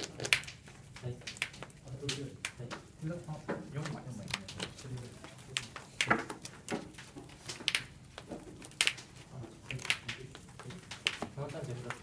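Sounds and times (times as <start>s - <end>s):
trading cards clicking and tapping: 0.0s - 12.0s.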